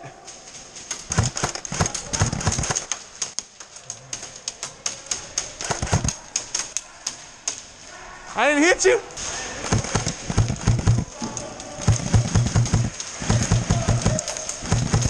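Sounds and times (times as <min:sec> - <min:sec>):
airsoft guns firing: 0:00.9 - 0:03.4, 0:04.1 - 0:07.2, 0:09.6 - 0:15.0.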